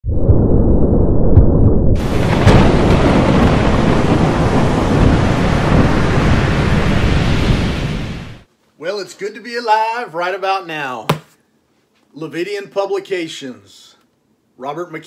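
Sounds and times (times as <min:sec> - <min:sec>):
low rumble of thunder: 0:00.1 - 0:08.4
sharp thunder crack: 0:01.1 - 0:08.4
heavy rain rushing: 0:02.0 - 0:08.5.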